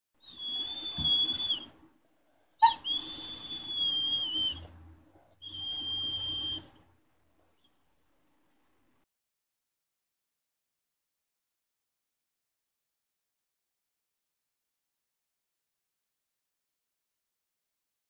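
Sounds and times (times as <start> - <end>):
dog whining: 0.2 - 1.7, 2.6 - 4.7, 5.4 - 6.8.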